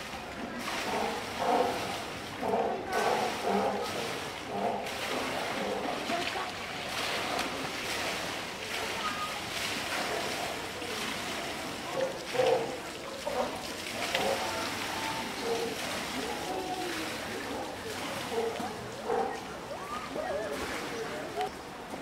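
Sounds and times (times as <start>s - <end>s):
people talking: 0.0s - 4.7s, 5.3s - 22.0s
water sloshing and splashing: 0.0s - 22.0s.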